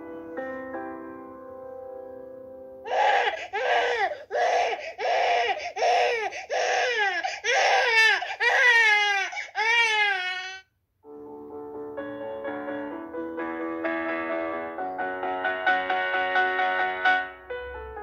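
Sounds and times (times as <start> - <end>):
piano chord ringing: 0.0 - 2.9, 11.0 - 18.0
infant crying: 2.8 - 10.7.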